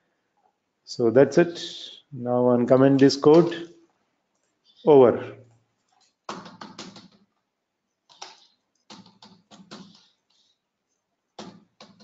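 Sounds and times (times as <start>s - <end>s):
computer keyboard keystrokes: 6.0s - 7.3s, 8.1s - 10.4s, 11.4s - 12.0s.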